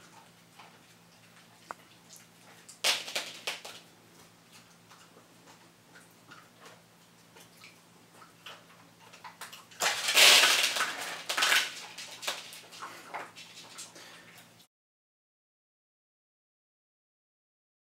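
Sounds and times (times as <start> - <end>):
treats spilling onto floor: 2.8 - 3.8, 9.8 - 13.5
paper crackling and tearing: 9.8 - 12.4.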